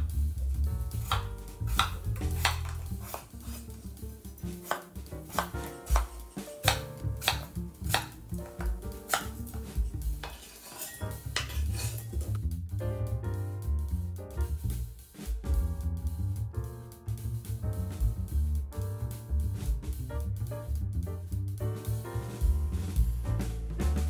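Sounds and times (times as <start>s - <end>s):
knife chopping on wooden board: 1.0s - 3.8s, 4.4s - 12.0s.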